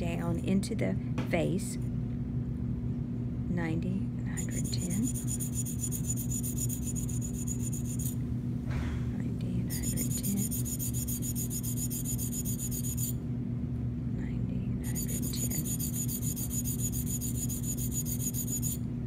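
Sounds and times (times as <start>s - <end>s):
sharpening stone scraping steel: 4.4s - 8.2s, 9.8s - 13.2s, 14.9s - 18.8s.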